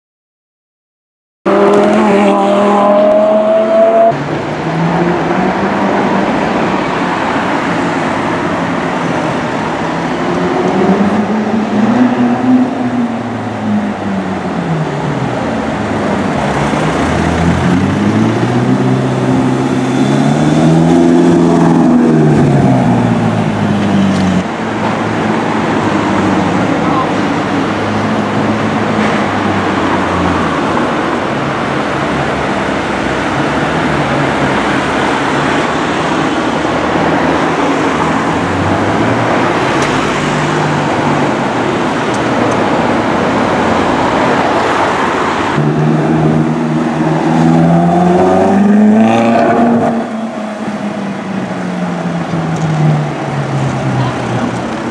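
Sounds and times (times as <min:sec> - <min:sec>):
city traffic: 0:01.4 - 0:54.9
sports car engine revving: 0:01.5 - 0:06.4.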